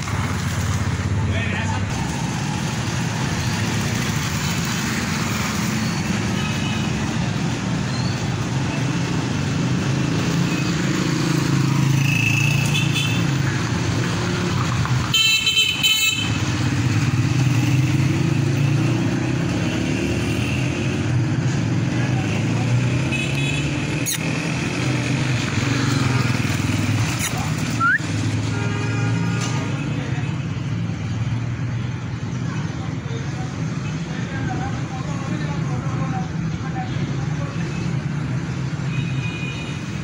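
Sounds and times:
road traffic rumble: 0:00.0 - 0:40.0
car horn toot: 0:15.1 - 0:16.4.

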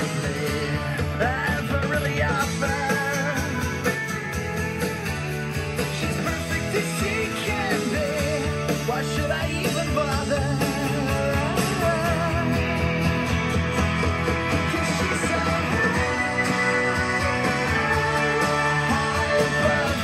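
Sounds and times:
rock music with guitar over speakers: 0:00.0 - 0:20.0.

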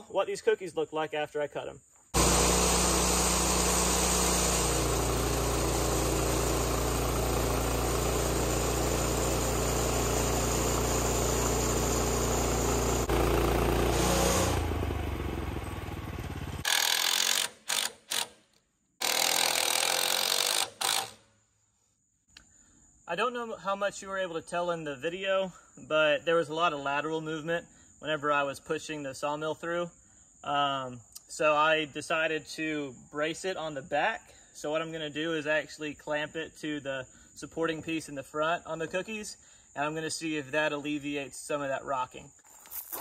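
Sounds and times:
band sawmill cutting log: 0:02.2 - 0:18.3, 0:19.0 - 0:21.2.

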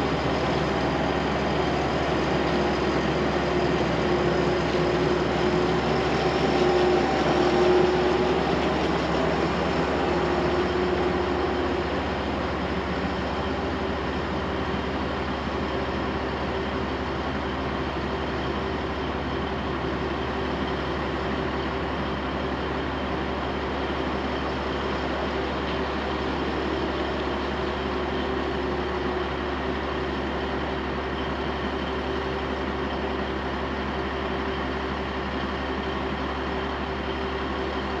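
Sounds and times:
road noise: 0:00.0 - 0:15.0
vehicle engine hum: 0:00.0 - 0:16.0.

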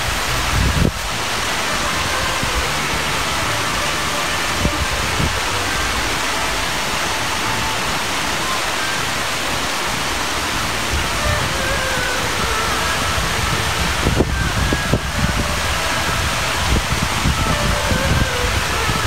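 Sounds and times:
water rushing over a weir: 0:00.0 - 0:19.0.

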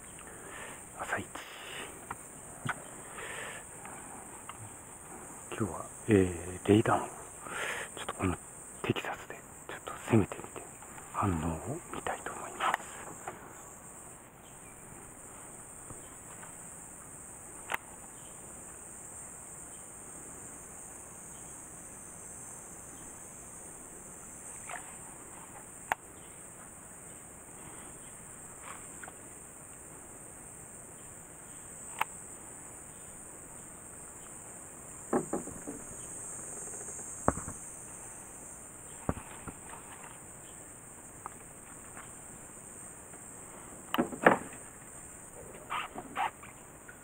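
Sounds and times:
cicadas droning: 0:00.0 - 0:47.0
sharp knocks and clicks: 0:35.1 - 0:36.0, 0:36.6 - 0:37.6, 0:43.9 - 0:44.6.

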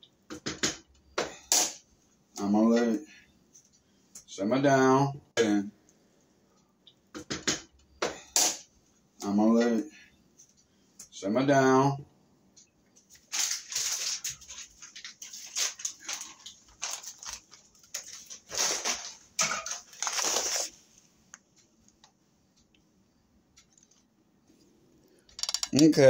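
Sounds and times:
foil pan crinkling: 0:13.2 - 0:20.8.

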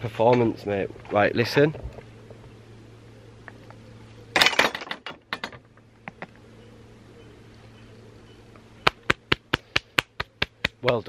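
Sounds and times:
faint steady hum: 0:00.0 - 0:11.0
sharp snap: 0:08.8 - 0:11.0.

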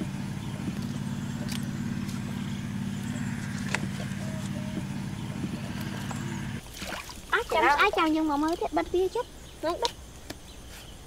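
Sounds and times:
small engine droning: 0:00.0 - 0:06.7.

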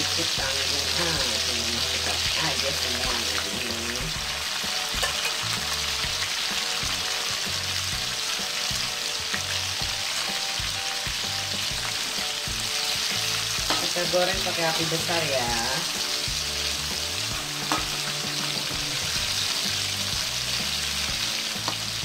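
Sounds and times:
shrimp sizzling in hot oil: 0:00.0 - 0:22.0
metal spatula scraping wok: 0:00.1 - 0:06.8, 0:09.1 - 0:20.8.

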